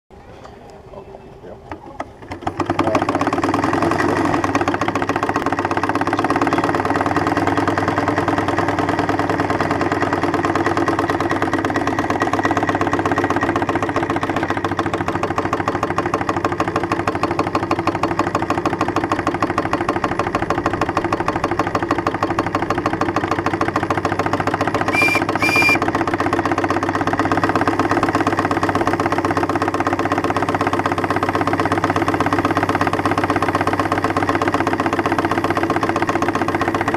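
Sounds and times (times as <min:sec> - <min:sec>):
steam traction engine running: 0:00.5 - 0:36.9
short high steam whistle toots: 0:24.9 - 0:25.8.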